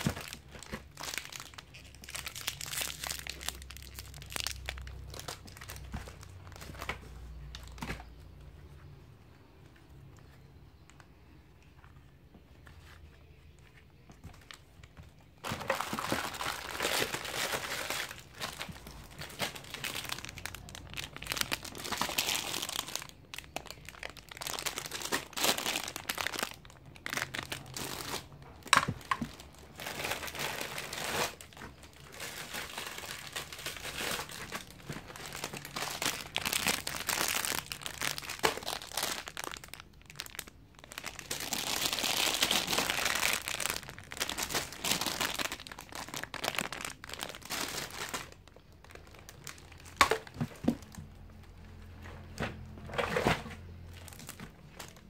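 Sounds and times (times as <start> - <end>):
packaging crinkling: 0.0 - 8.2, 12.6 - 51.8, 53.0 - 55.0.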